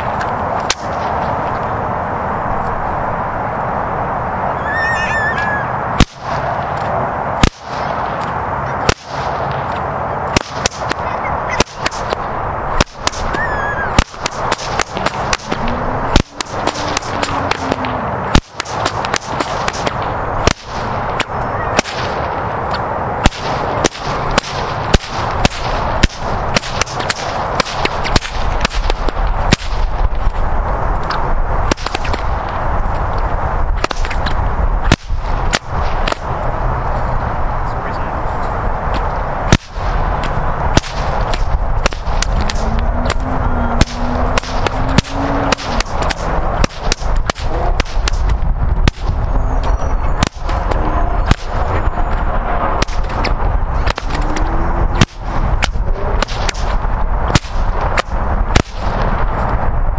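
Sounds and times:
whips cracking: 0.0 - 1.2, 6.0 - 33.1, 33.7 - 36.4, 38.9 - 59.5
steady background noise: 0.0 - 59.9.

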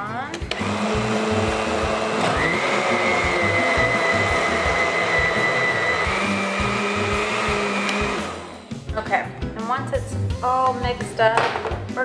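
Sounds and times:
blender motor whine: 0.5 - 8.6.

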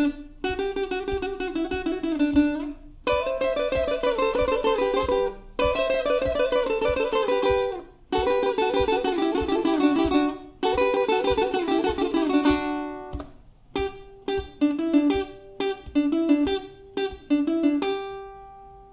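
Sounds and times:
fingerstyle nylon-string guitar: 0.0 - 18.9.

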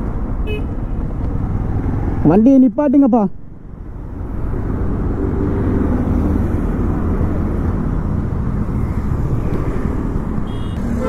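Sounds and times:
road noise: 0.0 - 11.0
vehicle horn: 0.5 - 0.8, 10.4 - 11.0.

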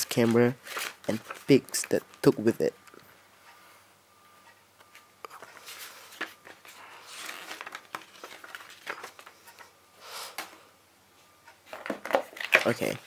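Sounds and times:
packaging rustling: 0.0 - 2.4, 5.4 - 9.7, 11.7 - 13.0.

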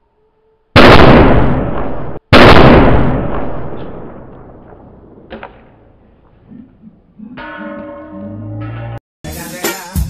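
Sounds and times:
loud firecracker blasts: 0.8 - 5.4.

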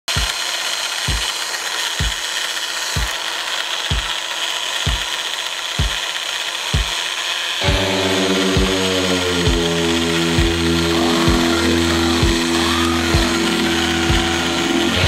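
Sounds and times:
kick drum beat: 0.1 - 0.4, 1.1 - 1.3, 2.0 - 2.2, 3.9 - 4.1, 4.9 - 5.1, 5.8 - 6.0, 6.8 - 7.0, 14.1 - 14.4
mini drill whining: 0.1 - 15.0.

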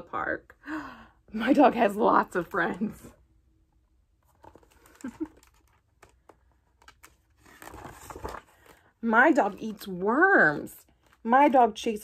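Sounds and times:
book page rustling: 4.2 - 11.6.

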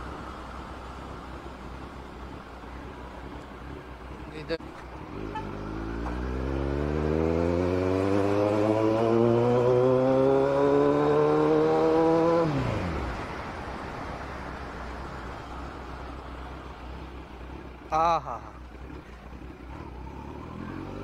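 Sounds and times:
road noise: 0.0 - 21.0
motorcycle engine revving: 4.6 - 13.6, 18.6 - 21.0.

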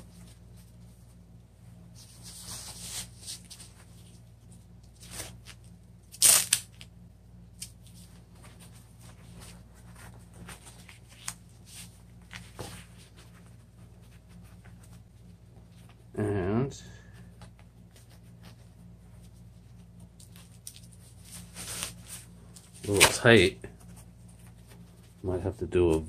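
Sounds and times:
velcro straps ripping: 5.0 - 6.9.

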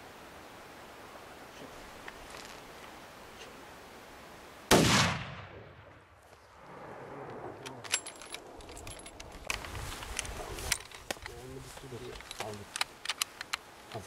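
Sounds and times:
rifle shot: 4.7 - 6.1
small clicks: 7.6 - 14.0.

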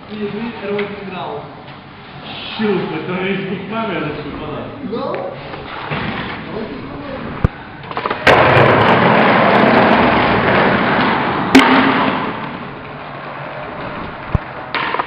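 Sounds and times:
skateboard wheels rumbling: 5.5 - 15.0
skateboard clacking on ground: 7.8 - 15.0.

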